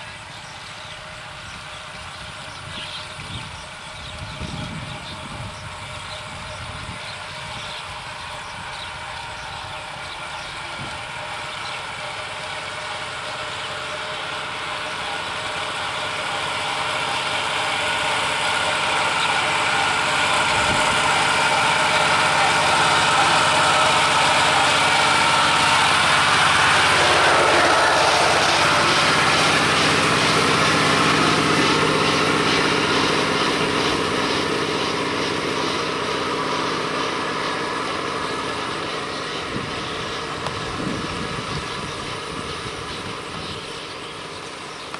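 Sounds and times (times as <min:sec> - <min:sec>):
engine drone passing: 0:00.0 - 0:44.9
power tiller engine: 0:00.0 - 0:44.9.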